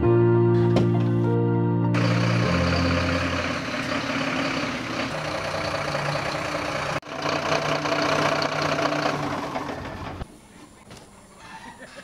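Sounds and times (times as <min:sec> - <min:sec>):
truck engine idling: 0:02.0 - 0:10.4.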